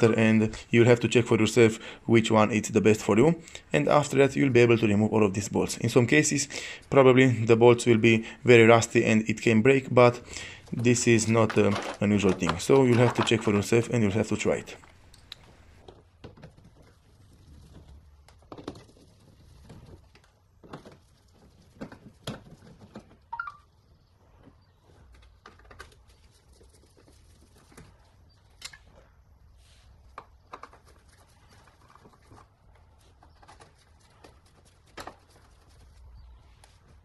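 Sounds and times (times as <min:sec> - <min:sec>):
plastic clicks taps and scrapes: 0:30.1 - 0:32.5.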